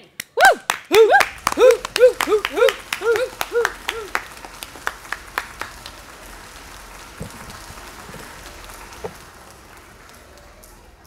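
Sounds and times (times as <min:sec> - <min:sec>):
applause: 0:00.0 - 0:11.0
person cheering: 0:00.4 - 0:05.2.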